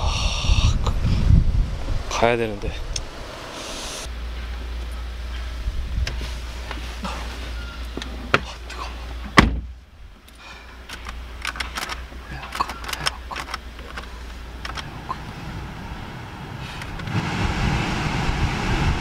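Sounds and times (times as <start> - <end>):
outside rumble: 0.0 - 19.0
car door thud: 9.3 - 9.7
small clicks and knocks: 10.2 - 14.9.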